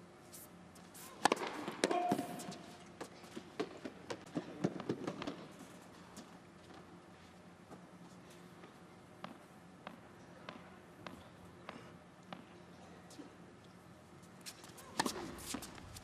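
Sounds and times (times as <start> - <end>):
racquet striking tennis ball: 1.2 - 2.6, 14.8 - 15.6
tennis ball bouncing: 1.2 - 2.6, 14.8 - 15.8.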